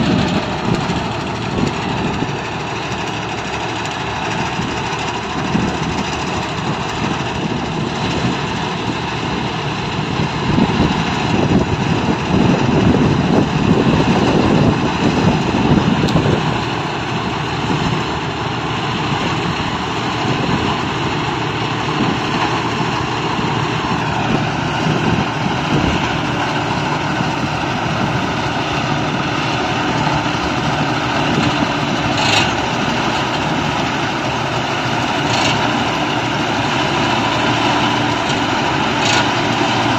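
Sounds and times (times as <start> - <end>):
combine harvester engine droning: 0.0 - 39.9.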